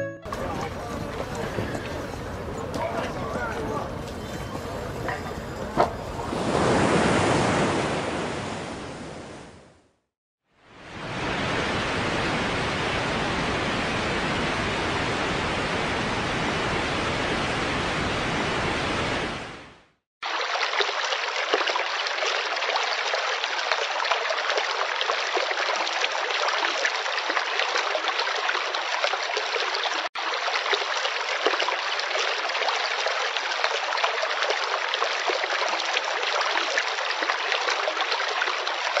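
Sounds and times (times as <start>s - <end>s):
trickling stream water: 0.3s - 8.0s, 20.2s - 39.0s.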